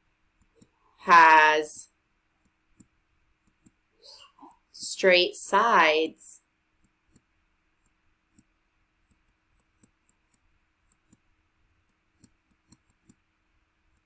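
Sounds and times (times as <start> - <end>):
pen tapping on screen: 2.4 - 3.8, 6.8 - 13.2.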